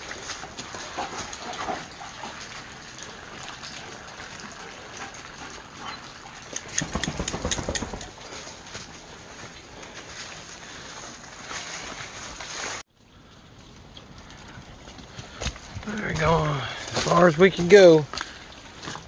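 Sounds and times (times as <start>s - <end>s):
knocks and rustling: 6.5s - 8.5s.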